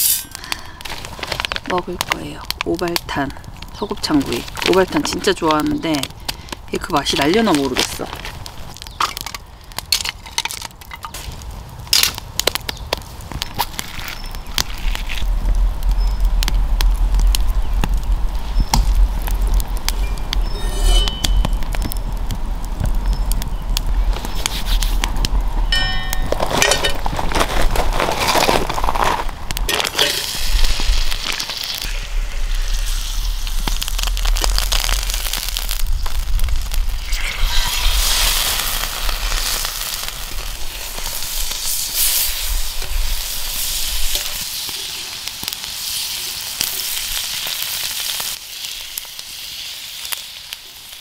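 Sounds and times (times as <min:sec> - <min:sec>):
food sizzling in a skillet: 0:00.0 - 0:00.4, 0:20.0 - 0:22.0, 0:29.7 - 0:51.0
firewood snaps and pops: 0:00.0 - 0:31.9, 0:32.5 - 0:37.3
wood fire crackling: 0:00.0 - 0:51.0.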